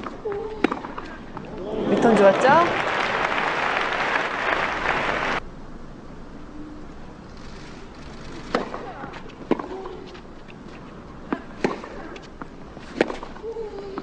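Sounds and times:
quiet stadium hush: 0.0 - 14.0
tennis racket hitting ball: 8.5 - 10.2, 11.3 - 14.0.

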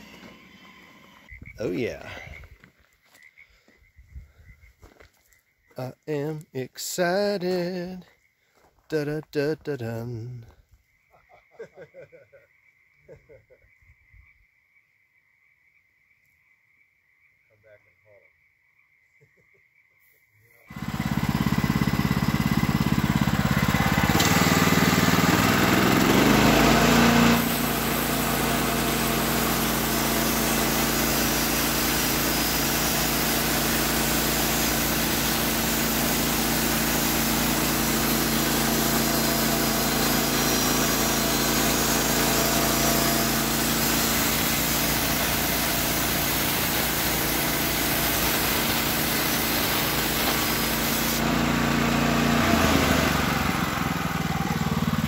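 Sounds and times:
saw cutting log: 0.0 - 1.3, 20.7 - 54.9
sawmill engine droning: 0.0 - 2.4, 20.7 - 55.0.

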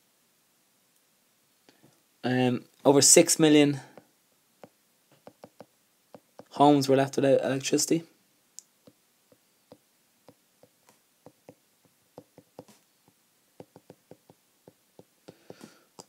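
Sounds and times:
stylus tapping glass screen: 3.9 - 6.6, 8.6 - 16.0.

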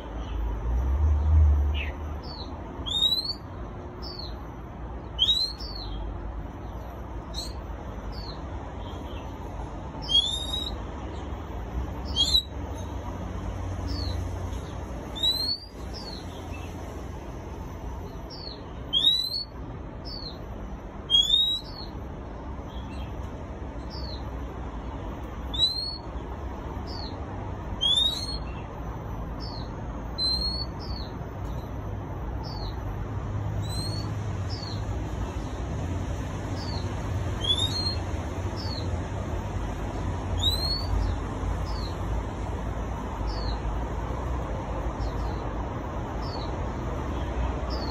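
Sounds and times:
bird whistling upward notes: 2.3 - 4.3, 5.2 - 6.0, 10.0 - 10.8, 12.0 - 12.5, 15.1 - 16.2, 18.4 - 20.4, 21.1 - 21.9, 25.5 - 26.1, 27.8 - 28.5, 29.4 - 31.1, 33.6 - 34.8, 37.4 - 38.0, 40.4 - 41.1.

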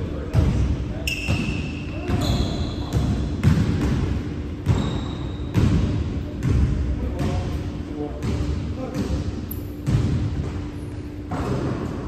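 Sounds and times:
sneaker squeaks: 0.9 - 4.0, 4.6 - 5.9
basketball bouncing on hardwood floor: 1.3 - 7.4, 9.8 - 10.6.

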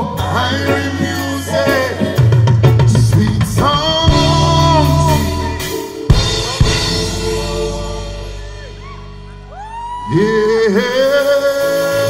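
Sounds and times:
drums: 0.0 - 10.0
bass line: 0.0 - 11.2
reggae band playing: 0.0 - 12.0
person singing long notes: 3.7 - 12.0.

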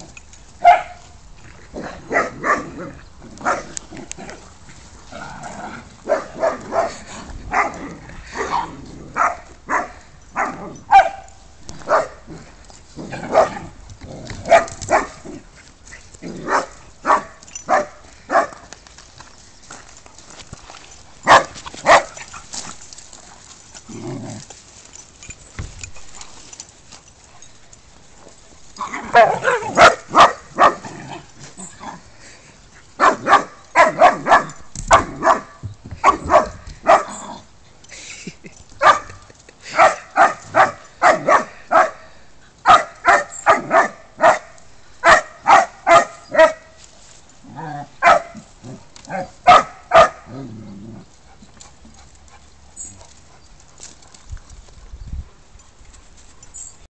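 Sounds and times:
dogs barking: 0.6 - 1.0, 2.0 - 3.7, 6.0 - 12.4, 13.1 - 13.7, 14.4 - 15.4, 16.4 - 18.6, 21.2 - 22.4, 28.8 - 31.2, 33.0 - 37.4, 38.8 - 46.8, 48.0 - 48.5, 49.1 - 50.5.

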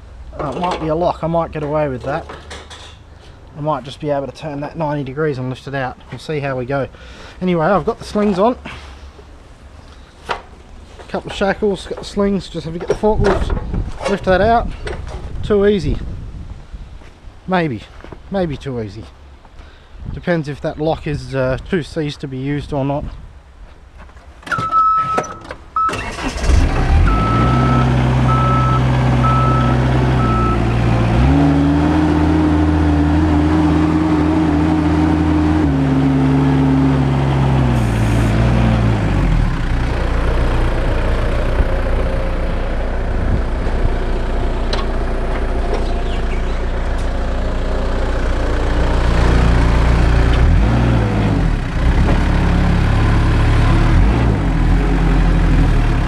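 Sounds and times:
forklift engine running: 25.8 - 56.0
warning tone: 27.0 - 32.3
evenly spaced beeps: 27.1 - 30.6.

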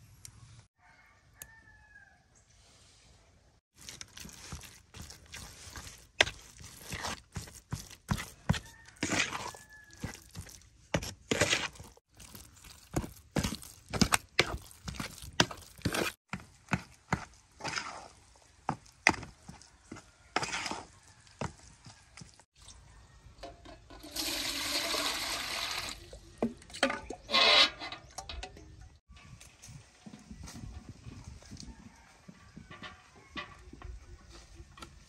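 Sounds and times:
water pouring into metal pot: 23.9 - 26.1.

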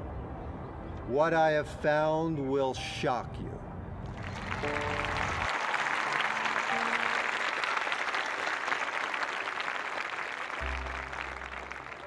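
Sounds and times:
faint background music: 0.0 - 5.5
crowd applause: 4.1 - 12.0.

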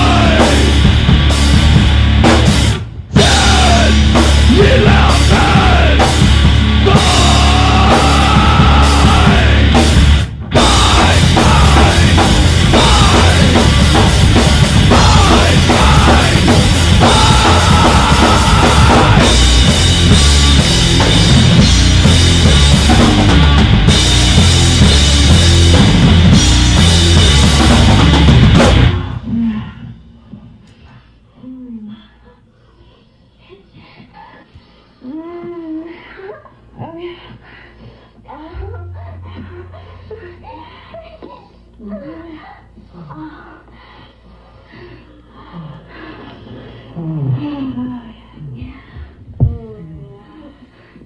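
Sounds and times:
loud rock music: 0.0 - 29.3.

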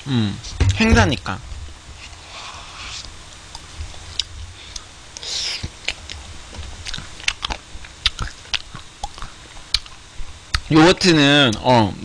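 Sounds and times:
chewing and mouth sounds: 3.0 - 10.7.

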